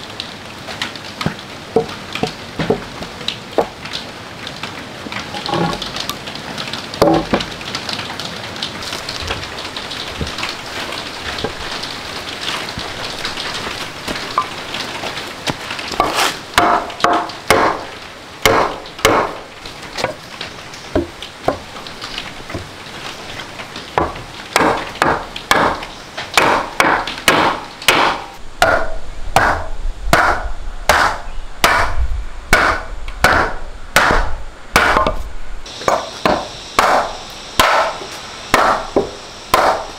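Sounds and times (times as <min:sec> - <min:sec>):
steady hiss: 0:00.0 - 0:39.9
wooden mallet knocking wood: 0:01.2 - 0:03.8, 0:07.0 - 0:07.5, 0:16.0 - 0:17.8, 0:18.5 - 0:19.4, 0:21.0 - 0:21.6, 0:24.0 - 0:25.8, 0:26.4 - 0:32.0, 0:32.6 - 0:35.2.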